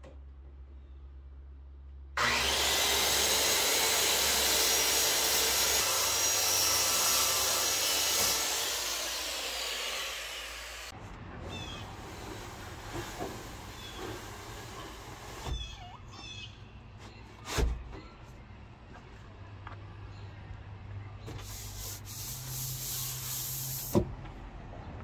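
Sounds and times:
circular saw cutting plywood: 0:02.2 - 0:15.7, 0:21.3 - 0:24.0.

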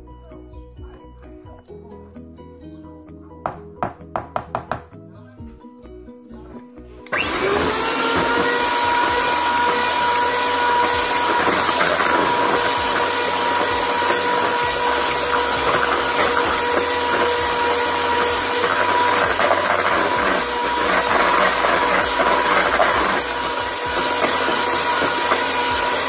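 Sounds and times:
electric hand mixer whining: 0:07.0 - 0:26.0.

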